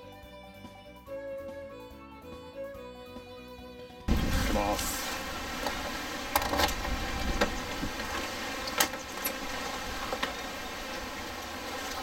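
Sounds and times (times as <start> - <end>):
sliding metal doors opening: 4.1 - 11.0.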